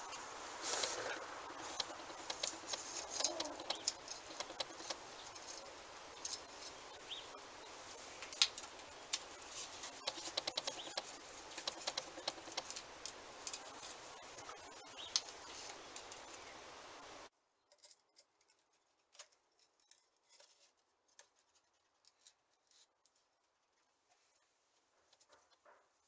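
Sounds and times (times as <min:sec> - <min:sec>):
screwdriver and screws tapping metal: 0:01.6 - 0:06.8, 0:08.2 - 0:13.7.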